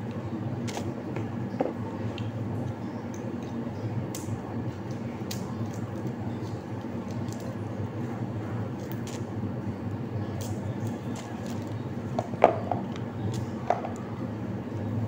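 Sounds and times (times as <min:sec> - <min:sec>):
steady low hum: 0:00.0 - 0:15.0
garlic skins crackling: 0:08.7 - 0:09.3, 0:10.3 - 0:13.6.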